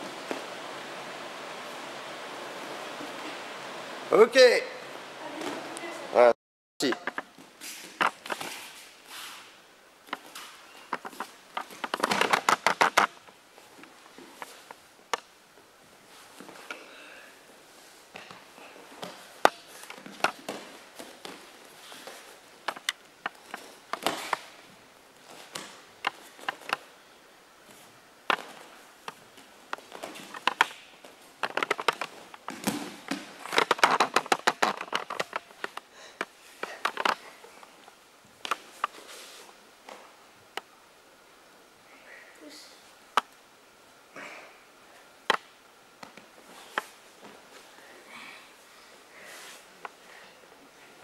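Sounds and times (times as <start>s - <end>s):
slaps and thumps on mats: 29.8s - 35.7s.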